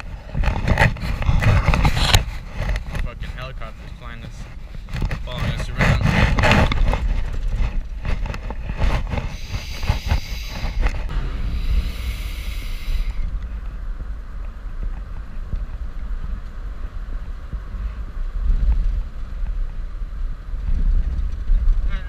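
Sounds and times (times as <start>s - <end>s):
rattles and clicks: 0.0s - 11.1s
road and engine rumble: 0.0s - 22.0s
wind buffeting the microphone: 0.0s - 22.0s
hiss: 9.3s - 10.8s, 11.4s - 13.3s.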